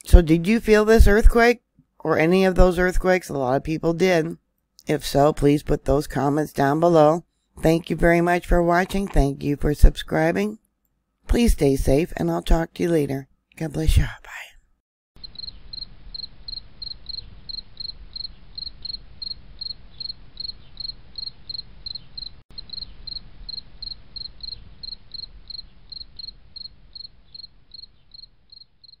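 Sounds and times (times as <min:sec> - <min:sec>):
cricket chirping: 0:15.2 - 0:29.0.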